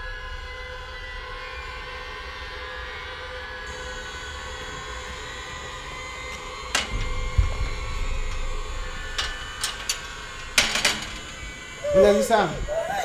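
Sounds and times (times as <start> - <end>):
steady droning tone: 0.0 - 13.0
latch clicks: 8.1 - 11.4
metal gate latch clack: 8.2 - 11.4.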